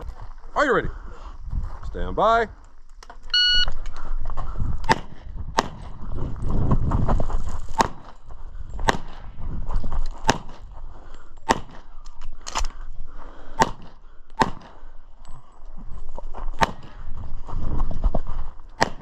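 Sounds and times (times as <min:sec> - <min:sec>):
handgun shots: 0:04.8 - 0:05.8, 0:07.8 - 0:08.1, 0:08.8 - 0:09.2, 0:10.2 - 0:10.6, 0:11.4 - 0:11.9, 0:13.6 - 0:14.8, 0:18.8 - 0:19.0.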